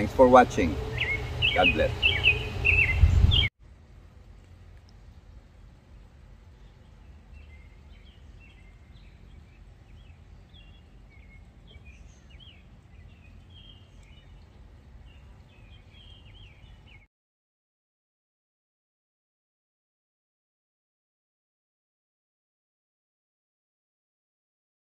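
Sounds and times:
birds chirping: 0.0s - 17.1s
faint low outdoor rumble: 0.0s - 17.1s.

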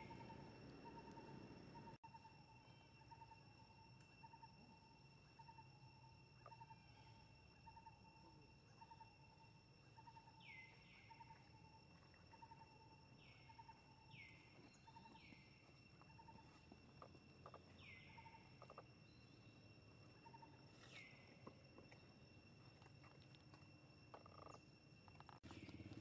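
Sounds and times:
soft chirp: 0.0s - 5.8s, 8.7s - 22.2s
insects high-pitched tones: 0.0s - 26.0s.

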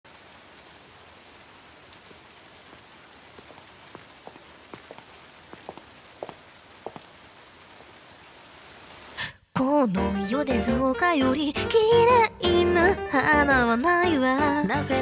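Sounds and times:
raindrops plinking: 0.1s - 8.8s
rain hissing: 0.1s - 9.5s.

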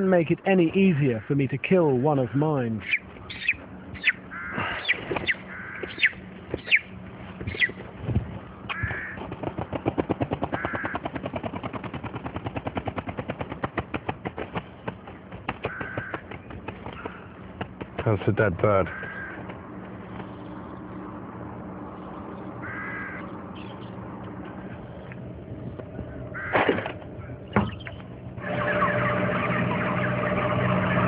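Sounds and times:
chicken squawking: 2.8s - 6.9s, 7.5s - 7.8s
wings flapping: 2.9s - 18.3s.

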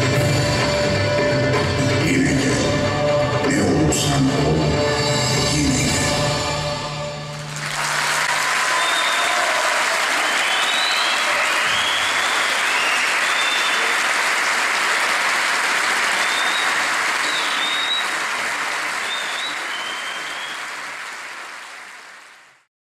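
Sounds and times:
audience applauding: 7.3s - 22.7s.

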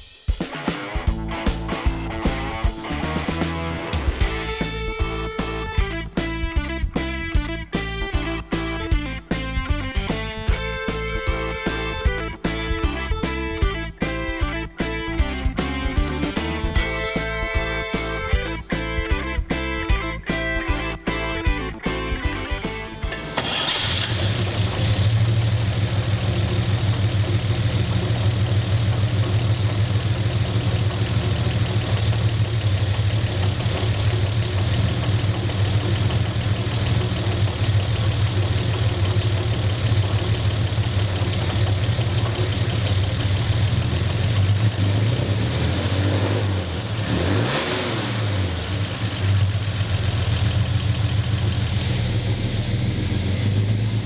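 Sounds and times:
car engine idling: 21.1s - 54.0s.

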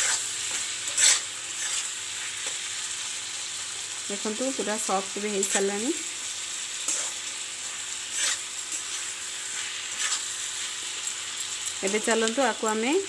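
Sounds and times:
metal spatula scraping pan: 0.0s - 2.6s, 6.8s - 12.3s
vegetables sizzling in hot oil: 0.0s - 13.0s.

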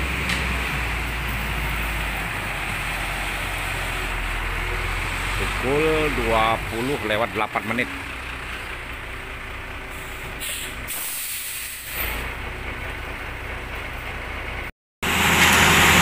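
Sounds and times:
truck engine running: 0.0s - 11.0s, 11.8s - 16.0s
air hiss: 9.9s - 12.2s.

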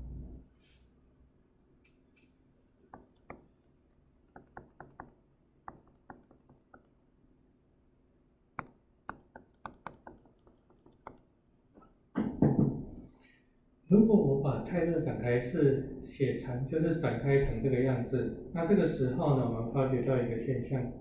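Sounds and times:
stylus tapping on tablet: 2.9s - 3.6s, 4.3s - 7.0s, 8.6s - 11.3s.

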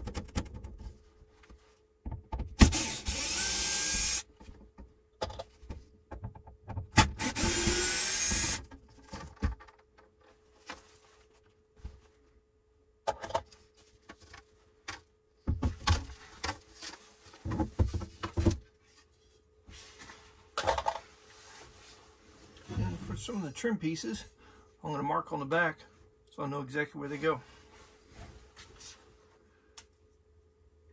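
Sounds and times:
cordless drill running: 2.6s - 4.3s, 7.0s - 8.7s.

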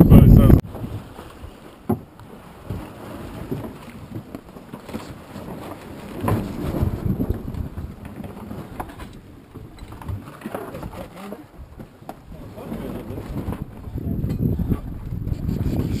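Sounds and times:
wind noise on microphone: 0.0s - 1.6s, 5.3s - 11.0s, 11.6s - 16.0s
sea wash: 0.0s - 16.0s.

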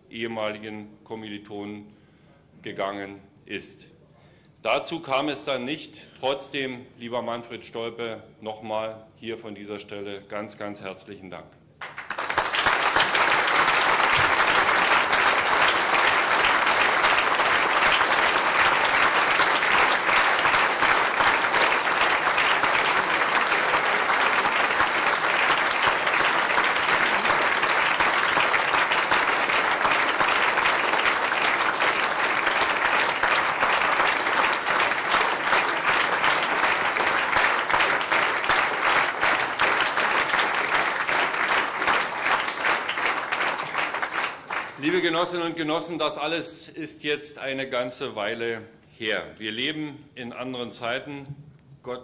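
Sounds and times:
audience applauding: 11.8s - 45.4s.

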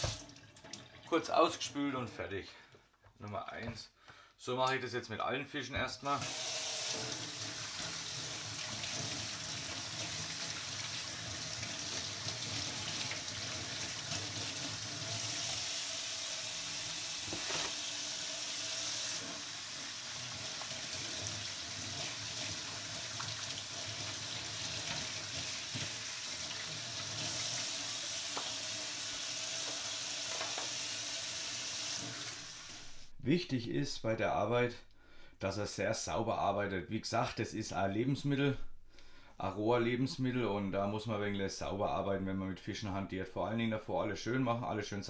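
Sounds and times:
tap running into a steel sink: 28.3s - 28.6s, 29.6s - 30.8s.

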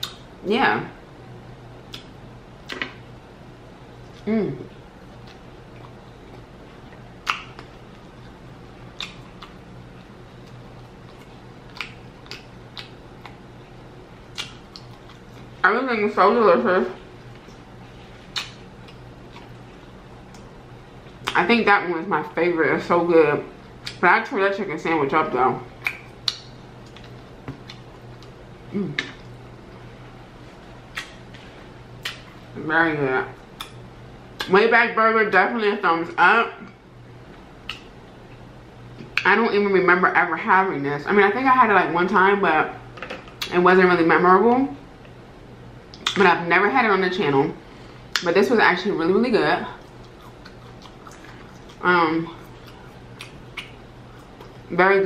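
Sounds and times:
faint steady hum: 0.0s - 55.0s
chewing bread: 5.0s - 15.6s, 17.2s - 21.4s, 49.8s - 54.7s
wet mouth smacks while chewing: 9.0s - 9.6s, 10.5s - 13.4s, 18.3s - 19.6s, 25.8s - 28.3s, 30.9s - 31.2s, 32.0s - 32.3s, 37.6s - 37.9s, 52.4s - 54.6s.

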